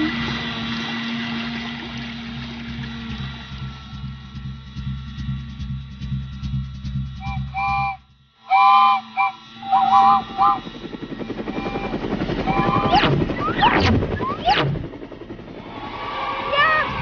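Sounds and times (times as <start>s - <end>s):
rhythmic train chugging: 0.0s - 17.0s
sliding whistle sweeps: 7.2s - 10.7s, 11.5s - 14.8s
toy train whistle toots: 7.2s - 10.7s, 11.5s - 13.1s.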